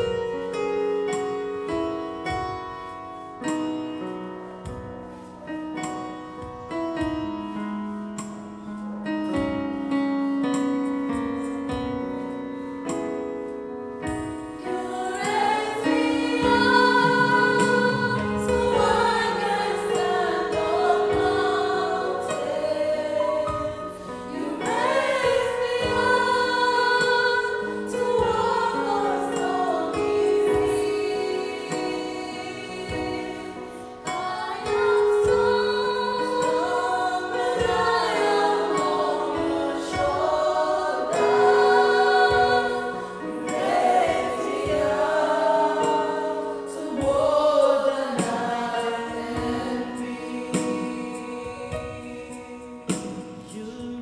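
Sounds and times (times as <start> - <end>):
voices singing: 14.7 - 54.0.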